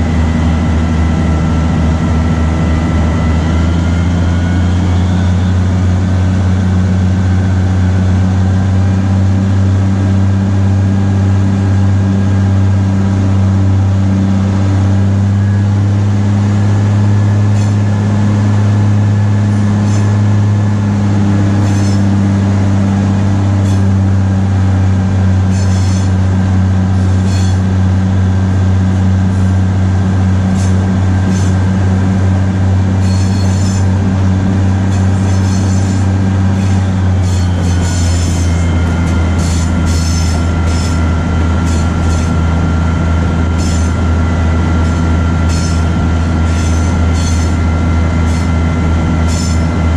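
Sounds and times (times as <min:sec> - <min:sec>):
high wheel squeals: 0:00.0 - 0:05.8, 0:17.3 - 0:24.1, 0:25.4 - 0:26.3, 0:26.9 - 0:27.7, 0:30.5 - 0:31.7, 0:32.8 - 0:49.9
diesel locomotive engine droning: 0:00.0 - 0:49.9.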